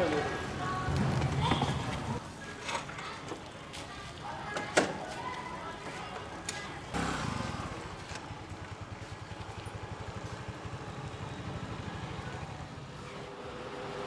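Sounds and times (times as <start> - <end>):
scooter engine running: 6.9 - 14.0.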